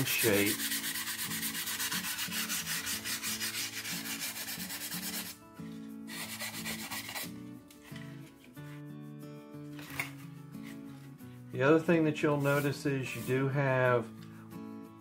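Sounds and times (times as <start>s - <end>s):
sandpaper rubbing: 0.0s - 5.4s, 6.1s - 7.3s, 12.4s - 13.5s
soft background music: 0.0s - 15.0s.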